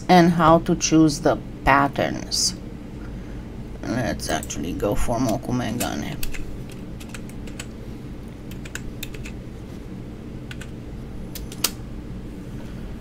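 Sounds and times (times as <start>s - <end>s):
keyboard typing: 5.3s - 7.8s, 8.4s - 9.4s, 10.5s - 10.8s.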